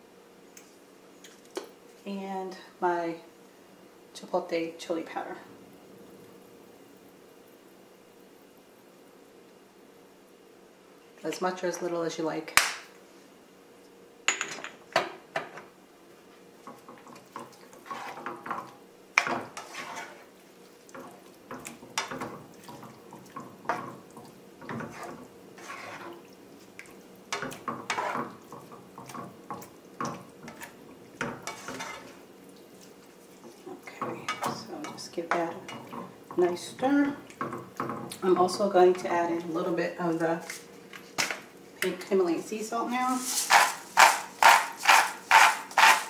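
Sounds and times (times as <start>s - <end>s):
spatula scraping and knocking pan: 16.6s - 20.3s, 20.9s - 26.2s, 27.3s - 32.2s, 33.4s - 38.6s, 43.1s - 46.0s.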